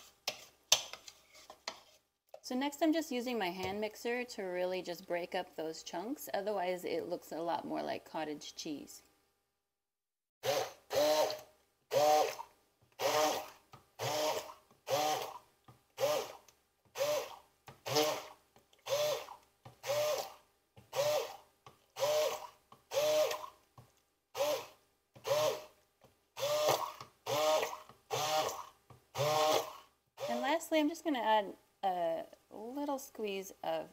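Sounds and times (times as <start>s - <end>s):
immersion blender motor whine: 10.4s - 15.4s, 16.0s - 16.4s, 17.0s - 21.4s, 22.0s - 23.6s, 24.4s - 25.7s, 26.4s - 30.6s.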